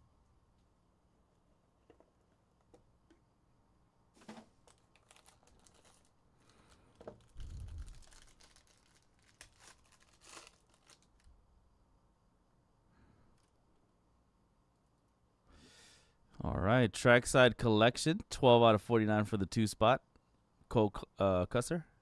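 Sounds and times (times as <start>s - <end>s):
plastic wrap tearing and crinkling: 4.2s - 11.3s.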